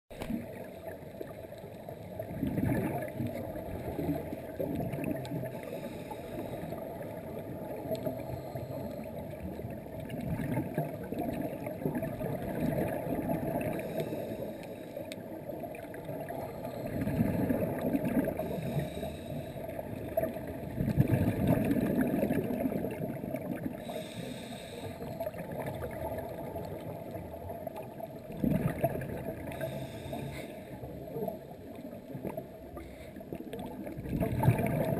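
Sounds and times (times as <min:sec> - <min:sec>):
muffled underwater wash: 0:00.1 - 0:34.9
diver's exhaled bubbles: 0:02.3 - 0:05.6, 0:16.3 - 0:18.8, 0:20.2 - 0:23.8, 0:28.3 - 0:29.6, 0:33.7 - 0:34.9.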